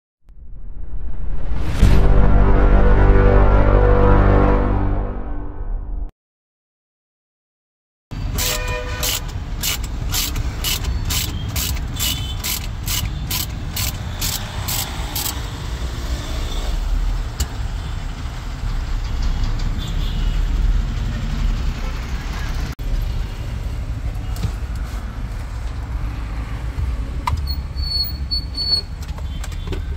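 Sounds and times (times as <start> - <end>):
low traffic rumble: 8.1 - 29.9
ratchet wrench clicking: 8.4 - 15.5.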